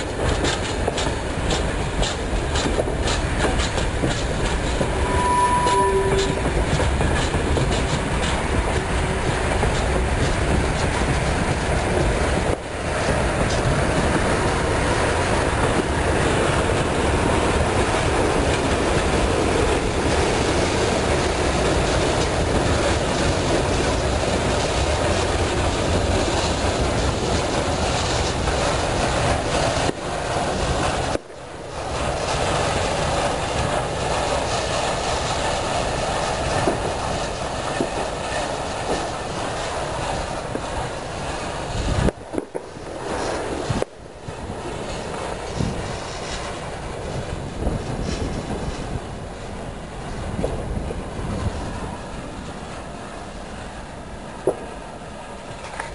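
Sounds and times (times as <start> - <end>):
wheels clacking over rail joints: 0.0 - 5.0, 6.2 - 52.9, 55.4 - 55.9.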